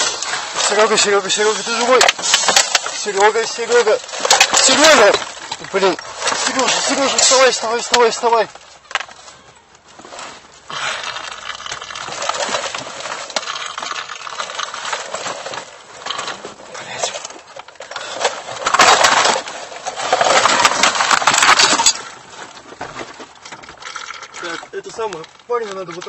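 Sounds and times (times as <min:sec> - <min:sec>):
clinks: 0:00.0 - 0:09.8, 0:10.7 - 0:22.6, 0:23.3 - 0:26.0
rustling and crackling on microphone: 0:00.0 - 0:26.0.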